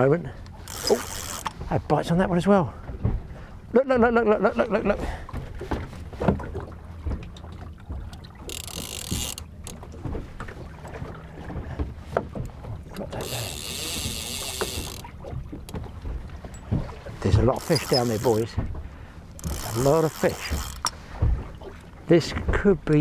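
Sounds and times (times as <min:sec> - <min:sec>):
water lapping against boat hull: 0:00.0 - 0:23.0
small knocks of gear: 0:07.1 - 0:10.3.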